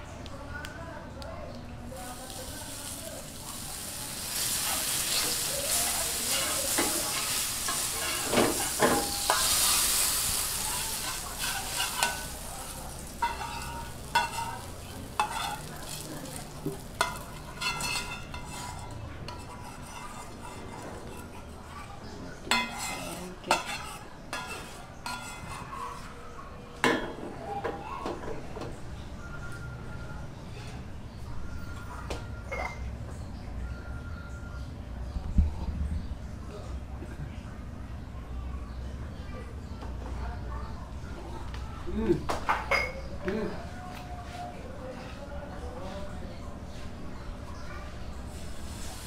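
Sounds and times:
food sizzling in a pan: 2.0s - 21.2s, 48.3s - 49.0s
utensil scraping a pan: 2.8s - 21.7s, 22.5s - 26.2s.

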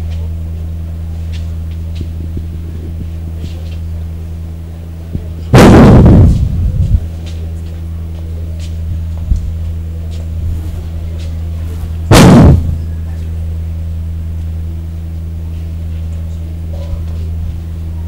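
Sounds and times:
low electrical hum: 0.0s - 18.0s
loud distorted thump: 5.5s - 6.8s, 12.1s - 13.0s.

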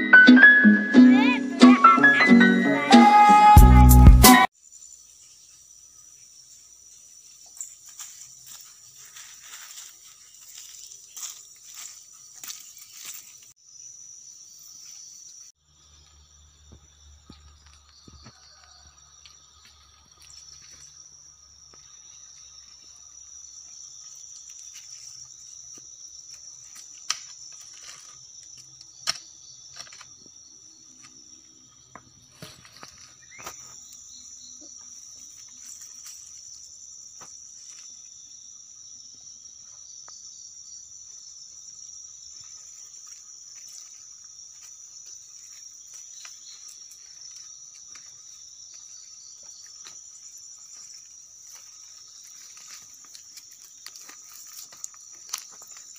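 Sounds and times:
insects chirring: 4.4s - 55.9s.

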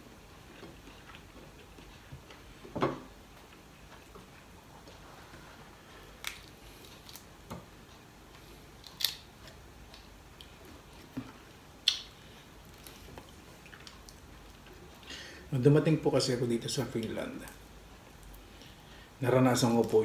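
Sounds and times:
prawn shells cracking while peeled: 6.2s - 7.3s, 8.8s - 10.5s.

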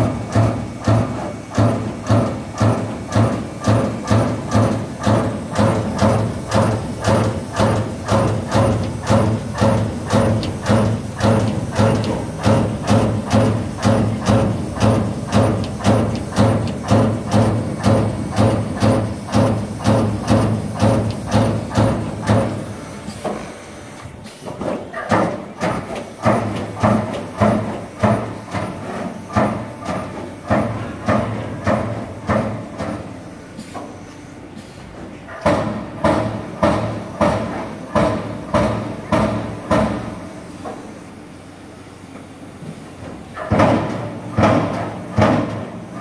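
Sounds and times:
steady machine hum: 0.0s - 24.2s
punch press striking sheet metal: 35.3s - 40.3s, 43.4s - 46.0s.

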